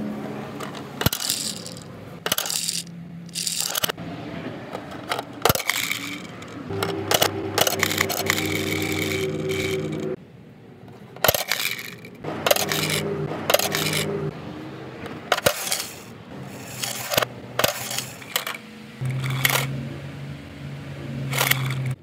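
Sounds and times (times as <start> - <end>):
plastic toy doors clicking open: 0.6 - 4.0, 4.7 - 7.9, 11.2 - 14.1, 15.3 - 16.1, 16.8 - 18.6
steady hum: 6.6 - 10.2.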